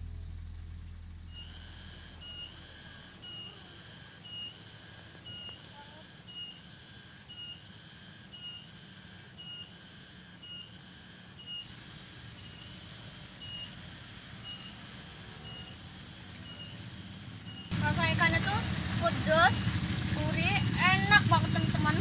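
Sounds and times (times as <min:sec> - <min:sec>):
faint low hum: 0:00.0 - 0:04.6
high-pitched insect calls: 0:00.0 - 0:22.0.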